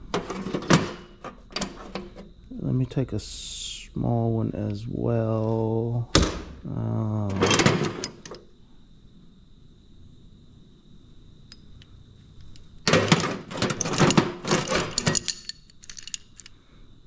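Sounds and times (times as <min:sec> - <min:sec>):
faint high whine: 0:01.2 - 0:13.3
metal tools clanking: 0:07.3 - 0:08.4, 0:12.4 - 0:16.5.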